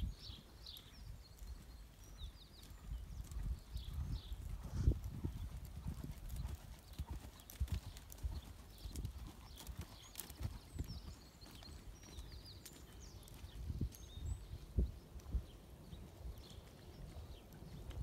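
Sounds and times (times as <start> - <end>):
pony hoofbeats: 0.9 - 14.1.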